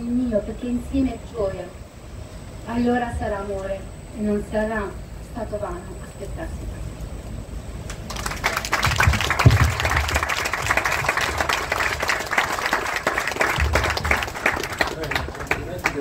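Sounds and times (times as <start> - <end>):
crowd applauding: 7.9 - 16.0
low thumps: 8.9 - 10.2.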